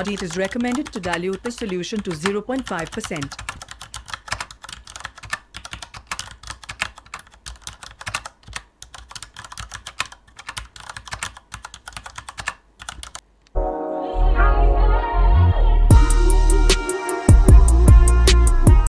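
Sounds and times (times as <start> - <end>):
computer keyboard typing: 0.0 - 13.2.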